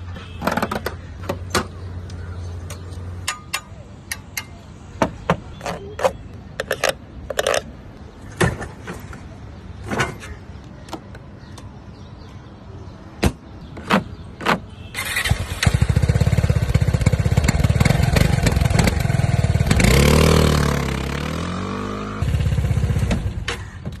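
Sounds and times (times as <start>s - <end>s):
scooter engine running and revving: 15.3s - 23.4s.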